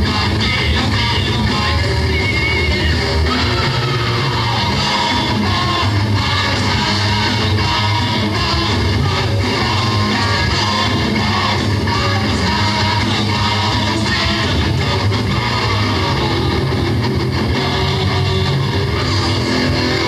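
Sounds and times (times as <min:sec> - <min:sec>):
bass: 0:00.0 - 0:20.0
drums: 0:00.0 - 0:20.0
electric guitars: 0:00.0 - 0:20.0.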